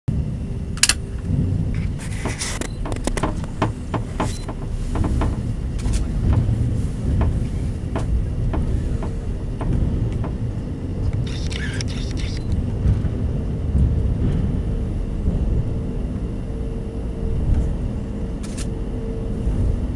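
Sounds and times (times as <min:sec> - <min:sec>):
train rolling rumble: 0:00.1 - 0:19.9
train clicks and clanks: 0:00.2 - 0:19.9.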